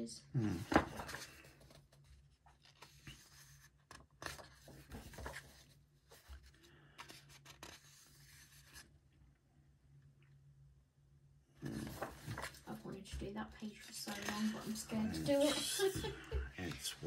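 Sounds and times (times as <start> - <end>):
paper pages rustling: 0.6 - 8.9, 11.6 - 16.0.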